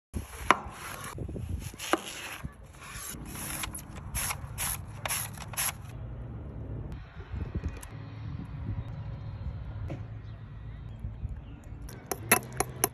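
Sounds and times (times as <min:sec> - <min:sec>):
onion scraping on mandoline: 0:00.2 - 0:05.8.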